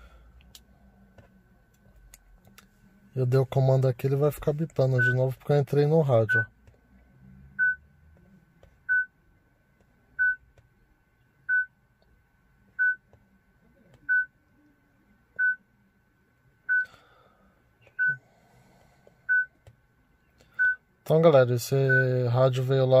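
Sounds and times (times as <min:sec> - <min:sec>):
car radio short beeps: 0:05.0 - 0:05.3, 0:06.2 - 0:06.5, 0:17.9 - 0:18.2.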